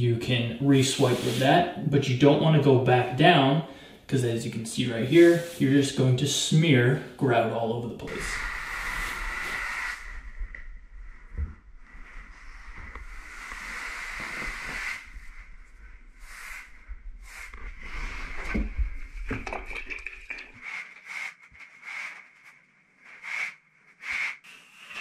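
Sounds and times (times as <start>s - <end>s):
sponge scrubbing floor tile: 0.8s - 1.6s, 8.1s - 10.4s, 11.3s - 25.0s.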